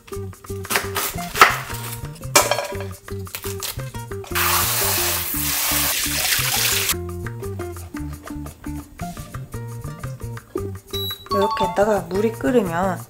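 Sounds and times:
background music: 0.0s - 13.0s
tap water running: 4.3s - 7.0s.

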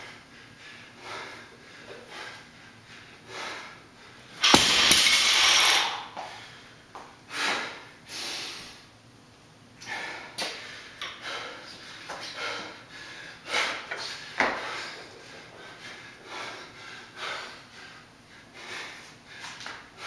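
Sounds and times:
hard breathing: 0.0s - 4.8s, 9.8s - 20.0s
bar and plates rattling: 4.4s - 6.1s
barbell dropped on concrete: 4.4s - 6.2s.

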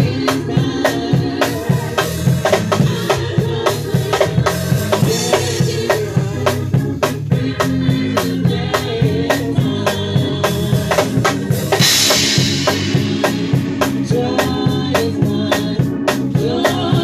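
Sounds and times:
drum kit beat: 0.0s - 17.0s
cymbal crash: 11.8s - 14.8s.

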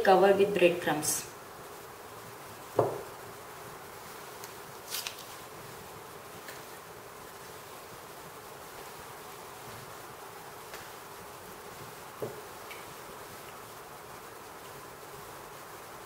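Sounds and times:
chicken rustling in breadcrumbs: 4.8s - 5.8s.

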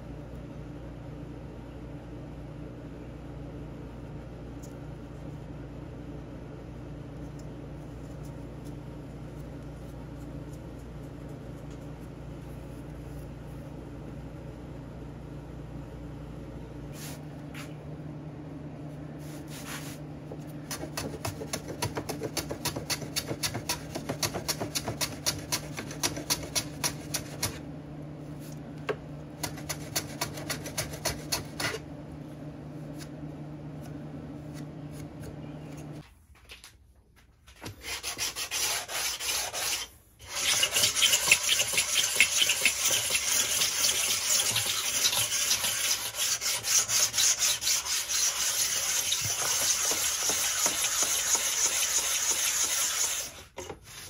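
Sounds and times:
steady low hum: 0.0s - 37.8s
block plane strokes on wood: 37.6s - 54.0s
hand sanding wood: 37.6s - 54.0s.

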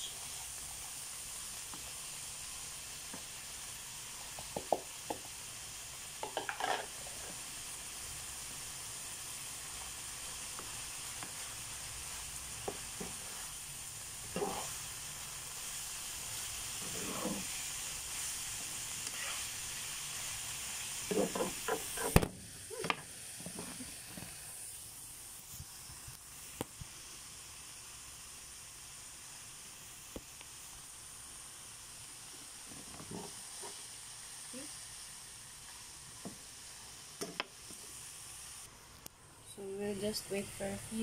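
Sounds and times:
vegetables sizzling in a frying pan: 0.0s - 41.0s
spatula scraping and knocking pan: 6.2s - 7.0s, 21.0s - 22.2s.

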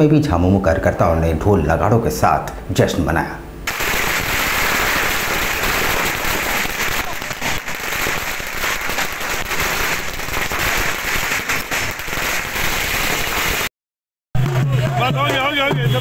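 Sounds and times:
firecrackers crackling: 3.6s - 13.7s.

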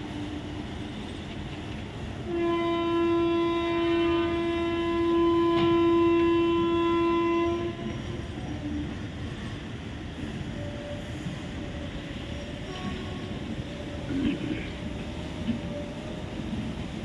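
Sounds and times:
locomotive horn blast: 2.2s - 8.1s, 12.6s - 13.4s.

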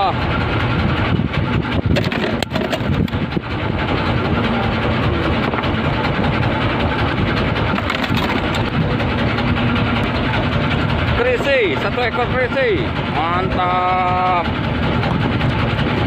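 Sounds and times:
boat engine droning: 0.0s - 16.0s
sharp clicks and knocks: 1.8s - 3.3s, 7.6s - 8.8s.

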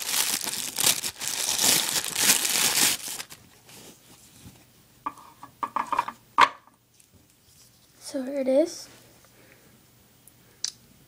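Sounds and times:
plastic bag crinkling: 0.0s - 4.0s.

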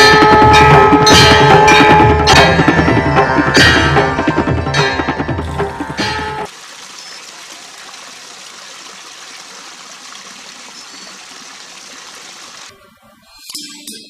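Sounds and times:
music with percussion: 0.0s - 6.5s
water trickling into pool: 5.4s - 13.5s.

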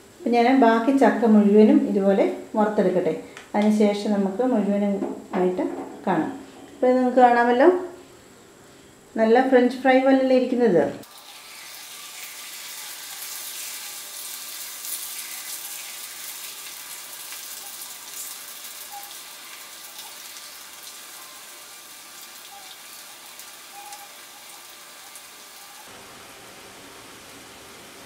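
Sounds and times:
batter deep-frying in hot oil: 11.0s - 28.0s.

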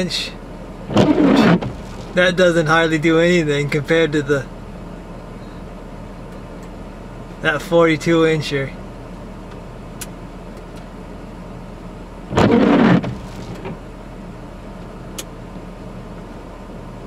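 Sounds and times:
truck engine idling hum: 0.0s - 17.0s.

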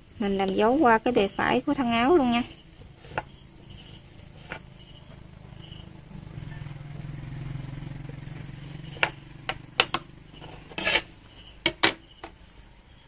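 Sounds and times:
motorbike engine passing: 3.4s - 11.4s
short scrape on wooden tabletop: 10.4s - 11.2s.

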